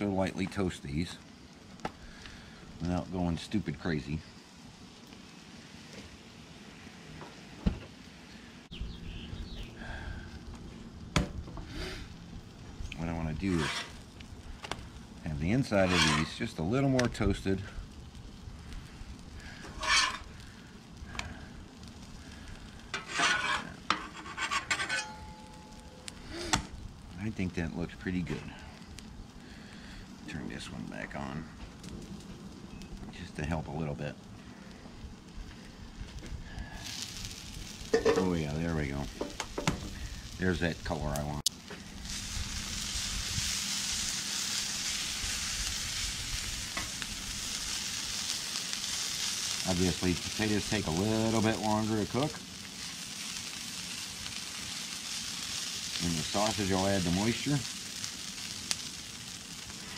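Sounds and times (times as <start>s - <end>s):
food sizzling on griddle: 0.0s - 59.9s
metal spatula scraping griddle: 13.4s - 14.0s, 15.6s - 16.6s, 19.6s - 20.4s, 22.9s - 25.6s
spatula tapping on griddle: 39.2s - 39.9s.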